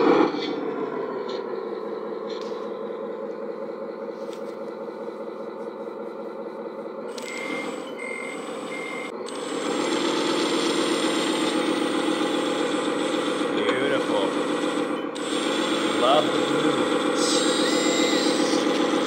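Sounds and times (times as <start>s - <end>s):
toy truck engine drone: 0.0s - 19.0s
short reversing beeps: 7.1s - 9.1s.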